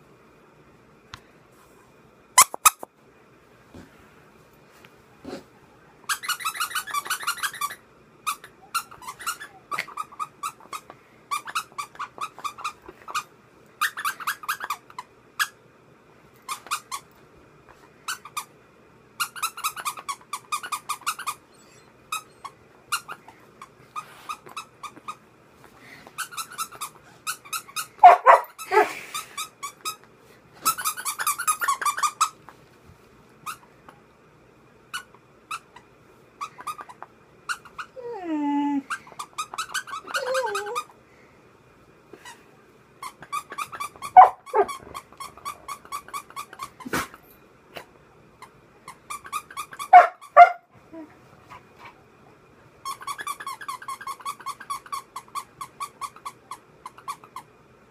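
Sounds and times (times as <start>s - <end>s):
squeaky toy rasping squeaks: 2.4s - 2.9s, 6.1s - 15.6s, 16.5s - 17.1s, 19.2s - 25.2s, 26.2s - 28.7s, 30.6s - 32.4s, 34.9s - 35.8s, 36.4s - 38.0s, 39.0s - 40.9s, 43.0s - 46.9s, 48.4s - 50.6s, 52.8s - 57.5s
puppy call: 37.8s - 40.9s, 43.4s - 47.1s, 49.6s - 51.1s.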